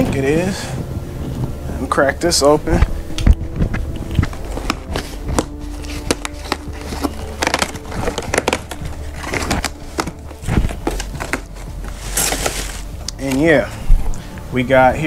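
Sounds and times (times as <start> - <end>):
music playing: 0.0 - 15.0
cardboard packaging clicks and scrapes: 3.2 - 13.6.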